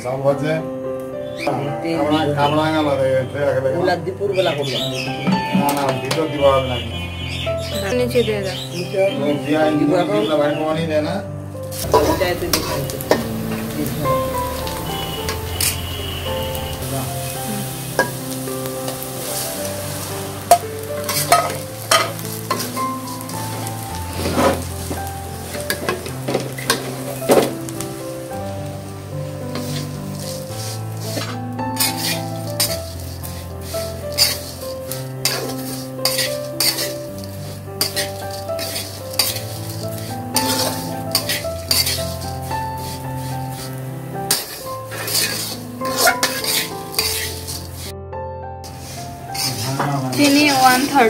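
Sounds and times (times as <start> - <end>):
background music: 0.0 - 51.0
metal spatula scraping a pan: 11.7 - 27.6, 29.5 - 47.9, 48.6 - 51.0
oil sizzling in a wok: 11.7 - 47.9, 48.6 - 51.0.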